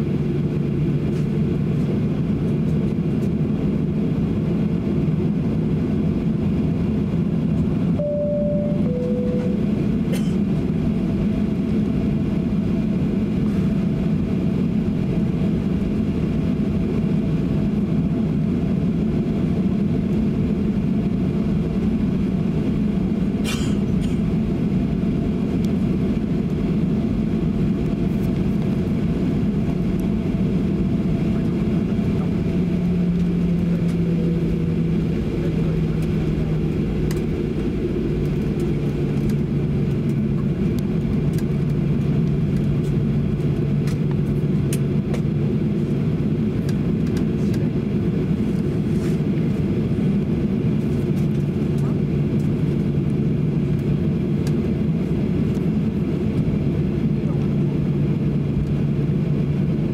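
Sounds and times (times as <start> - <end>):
jet cabin rumble while taxiing: 0.0 - 59.9
low steady hum: 0.0 - 59.9.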